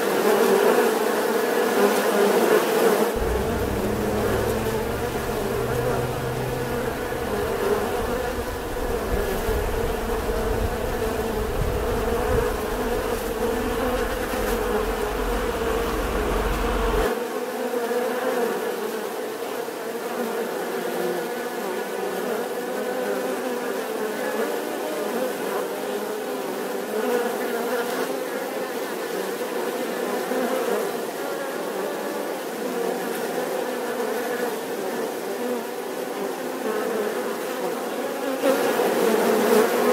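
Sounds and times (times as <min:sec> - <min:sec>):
honeybees buzzing: 0:03.2 - 0:17.1
low rumble: 0:03.2 - 0:17.1.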